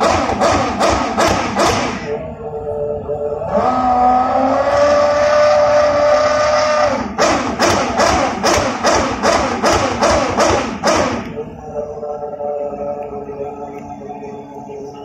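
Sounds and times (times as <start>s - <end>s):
racing car engine revving: 0.0s - 13.2s
sharp rhythmic thumps: 7.2s - 11.4s.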